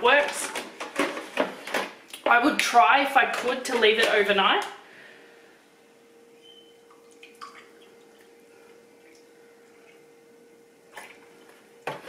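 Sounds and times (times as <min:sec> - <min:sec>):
faint steady hum: 0:00.0 - 0:12.0
liquid trickling into cup: 0:06.8 - 0:10.0.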